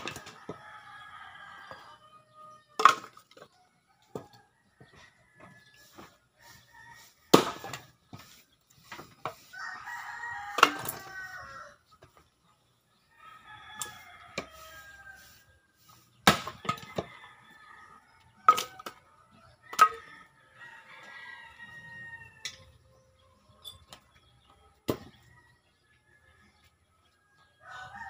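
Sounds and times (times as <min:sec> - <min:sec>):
axe chopping firewood: 0:07.3 - 0:07.9, 0:16.2 - 0:17.1, 0:24.8 - 0:25.2
rooster crowing: 0:09.5 - 0:11.8, 0:13.2 - 0:15.5, 0:19.8 - 0:22.5, 0:27.6 - 0:28.0.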